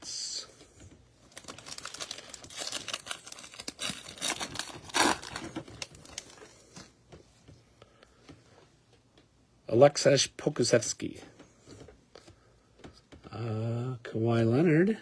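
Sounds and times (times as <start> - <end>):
foil wrapper crinkling and tearing: 1.3 - 6.5.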